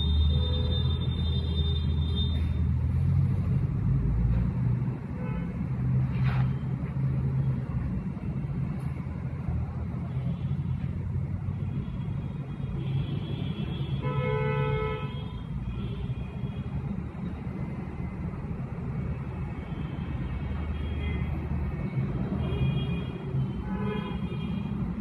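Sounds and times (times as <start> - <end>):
traffic rumble: 0.0 - 25.0
vehicle horn: 12.7 - 16.1, 22.4 - 24.8.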